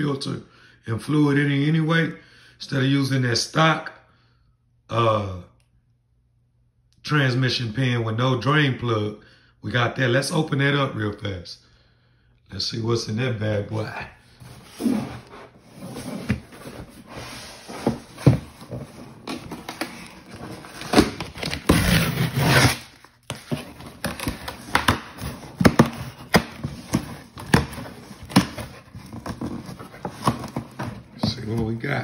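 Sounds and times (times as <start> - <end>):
packing tape tearing: 18.6 - 30.8.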